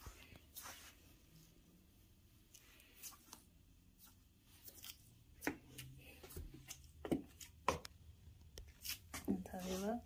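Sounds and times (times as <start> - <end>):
footsteps in slide sandals: 0.0 - 1.2, 8.7 - 10.0.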